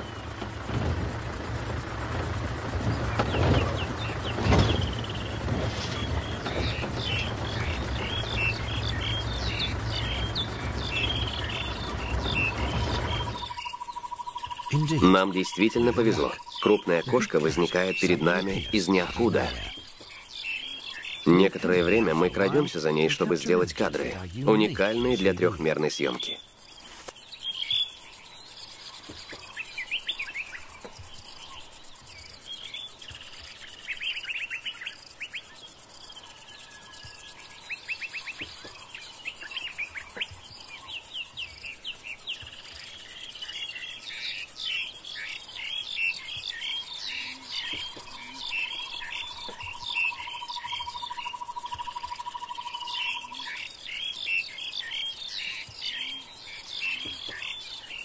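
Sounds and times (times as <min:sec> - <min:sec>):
birds chirping and calling: 0:00.0 - 0:58.0
insects droning: 0:00.0 - 0:58.0
long even bird trill: 0:06.0 - 0:19.8.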